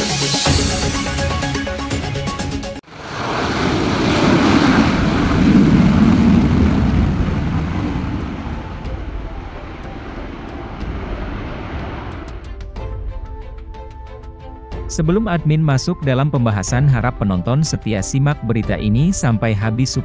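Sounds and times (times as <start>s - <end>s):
jet engines roaring on takeoff: 2.8s - 12.7s.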